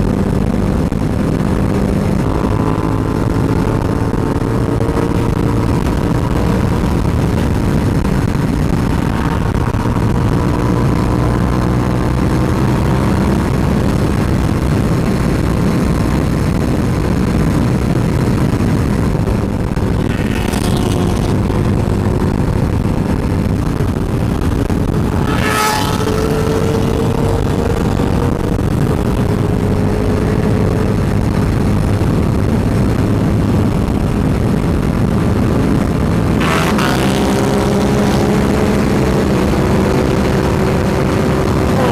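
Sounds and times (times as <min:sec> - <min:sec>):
motorcycle engine running: 0:00.0 - 0:41.9
wind rushing over microphone: 0:00.0 - 0:41.9.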